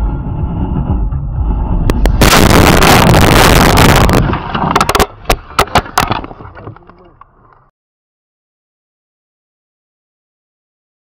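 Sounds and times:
sharp knocks and clicks: 3.8 - 7.6.

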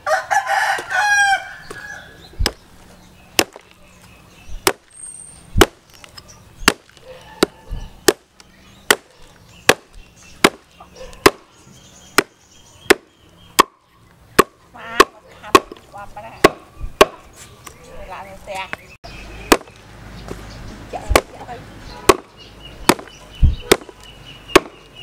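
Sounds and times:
hatchet chopping meat on wooden block: 2.4 - 2.6, 3.4 - 3.6, 4.6 - 4.9, 6.6 - 8.3, 8.9 - 9.1, 9.7 - 10.6, 11.2 - 11.4, 12.2 - 13.8, 14.4 - 15.8, 16.4 - 17.2, 19.5 - 19.7, 22.1 - 23.9, 24.5 - 24.8.

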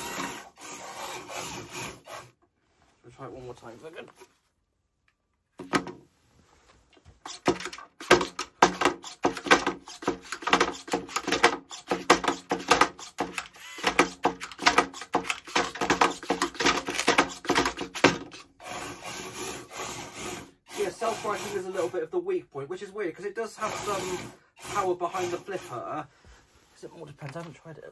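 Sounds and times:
robot clattering on plywood: 5.6 - 6.0, 7.2 - 18.4.

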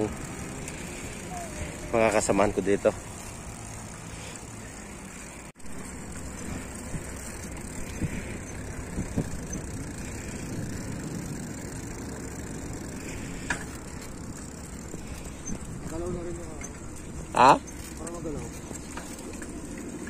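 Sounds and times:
bicycle tyres on asphalt: 0.0 - 20.0
wind on microphone: 6.4 - 10.0.

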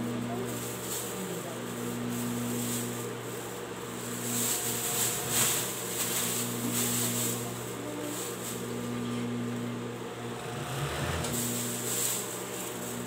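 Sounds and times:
sewing machine running: 3.9 - 7.7, 10.1 - 12.0.

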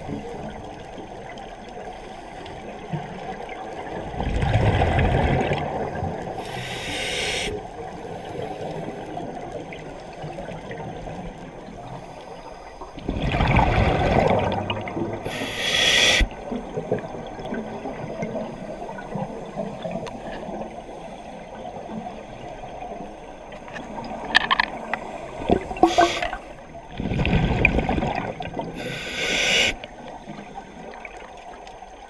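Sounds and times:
bubbles gurgling: 3.8 - 6.5, 13.0 - 18.4, 24.0 - 29.1
diver breathing through regulator: 6.4 - 7.6, 15.2 - 16.3, 25.0 - 26.6, 28.8 - 29.9.

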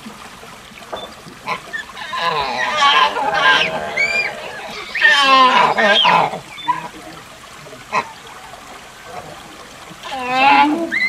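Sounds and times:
monkey wavering call: 1.8 - 7.0.

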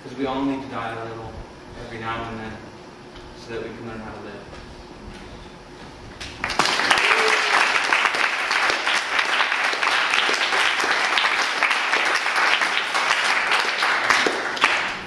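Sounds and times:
audience applauding: 6.4 - 15.0.

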